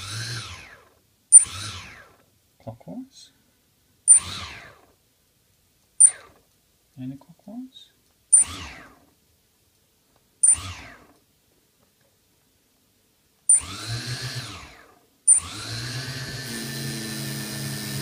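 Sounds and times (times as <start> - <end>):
brushless motor whirring: 0.0 - 2.2, 4.1 - 4.9, 6.0 - 6.4, 8.4 - 9.0, 10.4 - 11.2, 13.5 - 18.0
motor tick: 6.0 - 6.5, 13.5 - 13.8.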